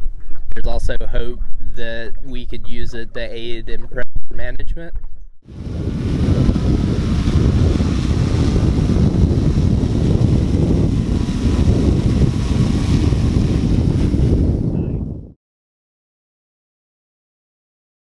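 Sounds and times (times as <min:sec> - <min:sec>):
wind buffeting microphone: 0:05.4 - 0:15.4.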